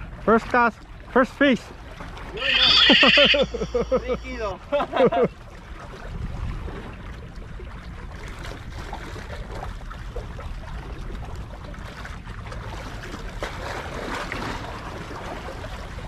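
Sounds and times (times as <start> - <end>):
waves lapping against rocks: 5.3 - 16.0.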